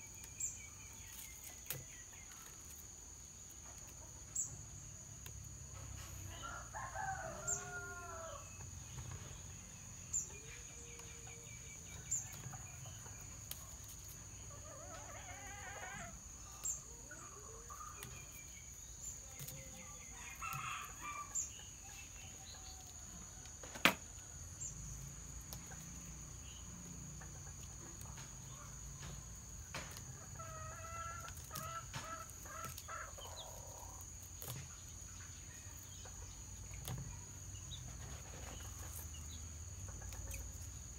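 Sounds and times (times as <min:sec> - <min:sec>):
rooster crowing: 0:06.3 - 0:08.5
chickens clucking: 0:29.8 - 0:40.9.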